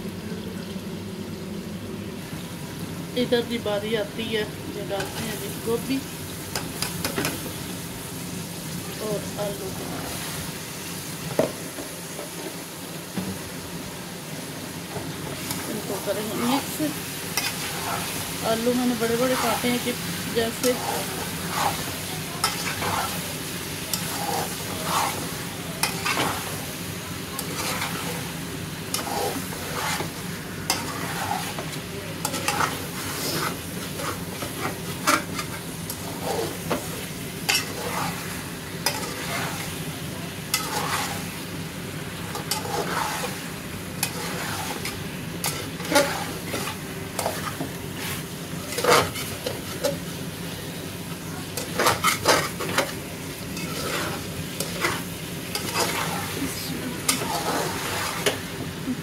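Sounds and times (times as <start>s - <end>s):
food sizzling: 0.0s - 59.0s
metal spatula scraping a pot: 20.6s - 23.2s, 23.9s - 26.5s, 27.4s - 28.2s, 28.9s - 31.6s, 32.2s - 36.7s, 37.5s - 38.2s, 38.8s - 39.7s, 40.5s - 41.2s, 42.3s - 43.4s, 44.0s - 47.6s, 48.7s - 49.8s, 51.6s - 52.8s, 53.6s - 56.3s, 57.1s - 58.4s.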